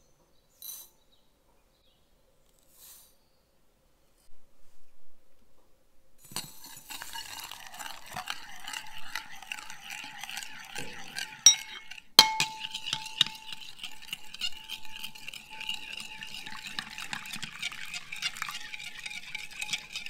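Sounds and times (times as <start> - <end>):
metal spoon stirring in ceramic bowl: 6.3 - 20.0
spoon clinking bowl: 6.3 - 20.0.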